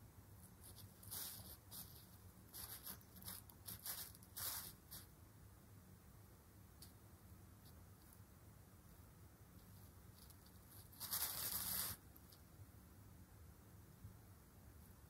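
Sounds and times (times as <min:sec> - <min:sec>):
synthetic cloth rustling: 0:09.6 - 0:12.0.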